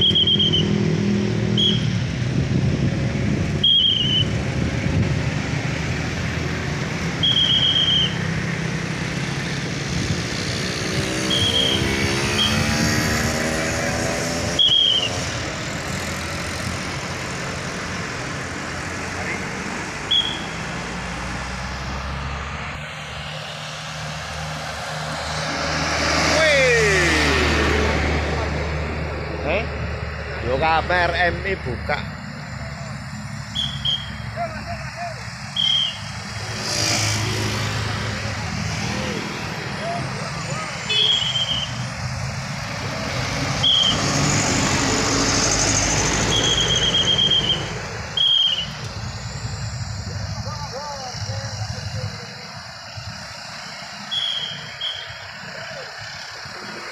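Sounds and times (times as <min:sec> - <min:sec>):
passing vehicle engines hum: 0:00.0 - 0:56.9
high-pitched squeals: 0:11.0 - 0:13.7, 0:30.8 - 0:36.5, 0:38.9 - 0:42.0, 0:43.4 - 0:56.9.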